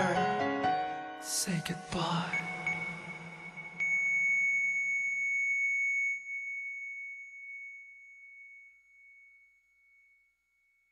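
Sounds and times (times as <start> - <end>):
heart monitor continuous beep: 2.0 - 8.7.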